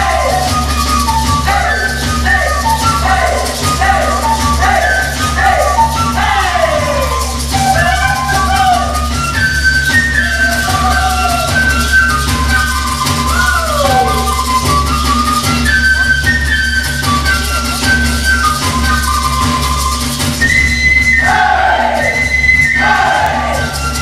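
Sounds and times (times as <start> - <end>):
high flute melody: 0.0 - 24.0
rattles shaking: 0.1 - 21.2.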